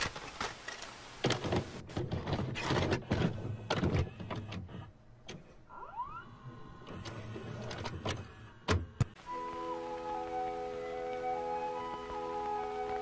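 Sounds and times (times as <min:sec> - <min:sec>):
tape mechanism whine: 0:05.7 - 0:13.0.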